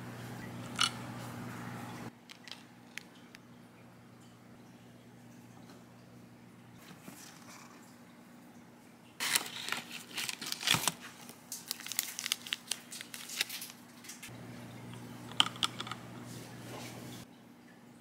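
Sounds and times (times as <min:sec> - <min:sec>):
foil wrapper crinkling and tearing: 0:09.2 - 0:14.3.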